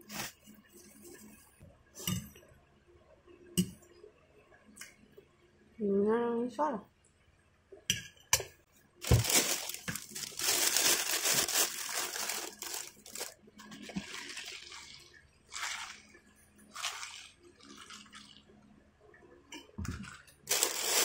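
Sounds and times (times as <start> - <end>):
plastic bag rustling: 0.0 - 0.4, 9.0 - 18.2, 19.9 - 21.0.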